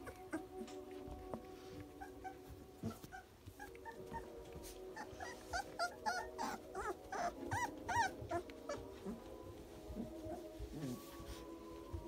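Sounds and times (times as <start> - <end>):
dog whimpering: 1.9 - 9.2.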